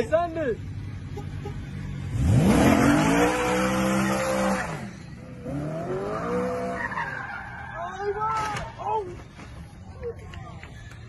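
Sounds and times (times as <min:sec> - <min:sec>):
car engine revving: 0:00.6 - 0:07.5
tyres squealing: 0:06.0 - 0:10.0.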